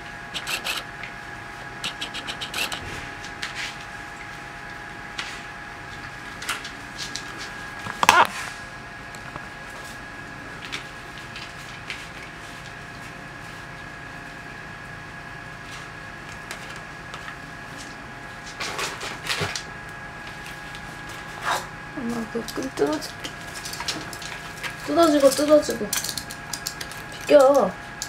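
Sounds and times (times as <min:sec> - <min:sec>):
faint steady hum: 0:00.0 - 0:18.6.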